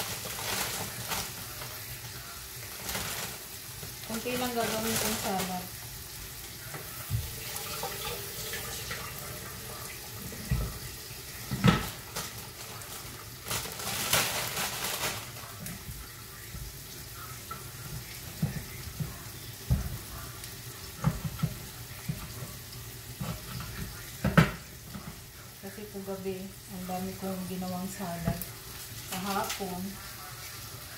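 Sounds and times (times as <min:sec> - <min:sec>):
frying food sizzling: 0:00.0 - 0:30.9
tap running: 0:06.7 - 0:09.6, 0:17.5 - 0:20.3.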